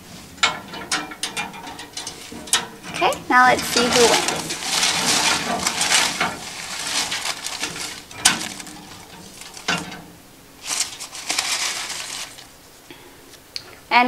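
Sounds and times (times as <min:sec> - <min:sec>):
crank rattling: 0:00.0 - 0:12.6
paper slips tumbling in drum: 0:00.0 - 0:12.8
paper rustling: 0:02.0 - 0:12.8.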